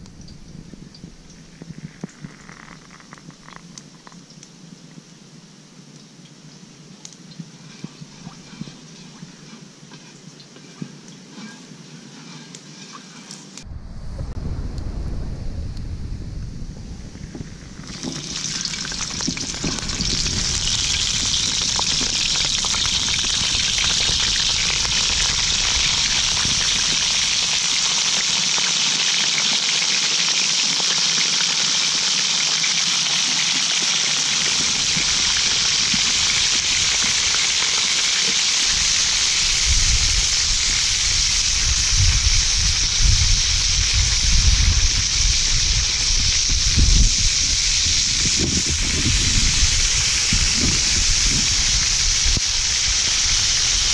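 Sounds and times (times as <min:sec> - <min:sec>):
low rumbling: 0:00.0 - 0:01.6, 0:13.6 - 0:27.4
octopuses sizzling in hot oil: 0:01.4 - 0:04.2, 0:07.0 - 0:13.6, 0:17.1 - 0:53.9.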